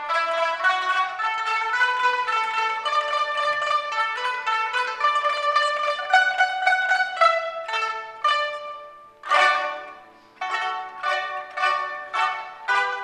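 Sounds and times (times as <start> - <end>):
loud plucked chord: 0.0 - 13.0
lutes plucking lively melody: 0.0 - 13.0.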